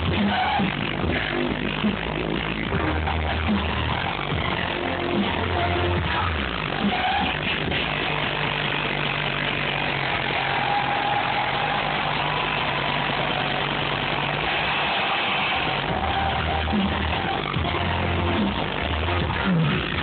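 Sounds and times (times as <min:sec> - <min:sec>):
loud electronic dance music: 0:00.0 - 0:20.0
low bass drone: 0:00.0 - 0:20.0
pounding bass beat: 0:00.0 - 0:20.0.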